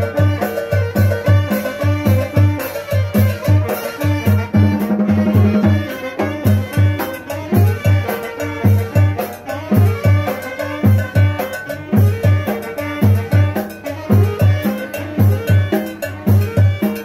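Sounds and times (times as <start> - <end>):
latin dance music: 0.0 - 17.0.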